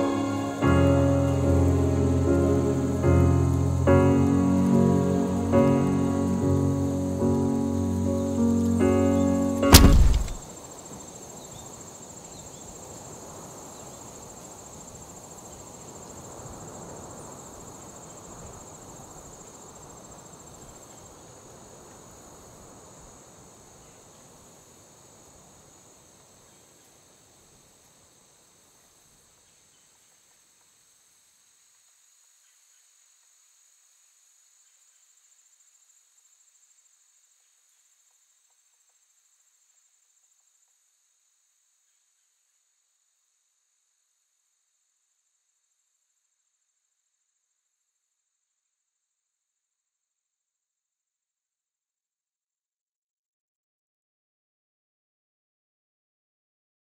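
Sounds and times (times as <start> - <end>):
low ambient wash: 0.0 - 10.4
crickets chirping: 0.0 - 48.8.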